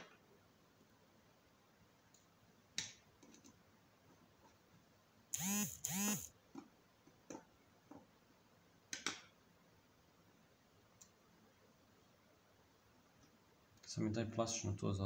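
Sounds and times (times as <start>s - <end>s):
screwdriver on screw: 5.4s - 6.3s.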